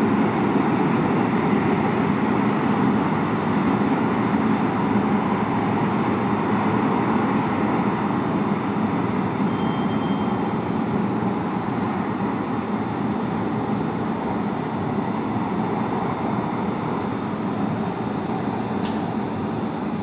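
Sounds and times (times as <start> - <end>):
subway train rumble in tunnel: 0.0 - 20.0
faint high squeal: 9.1 - 10.5.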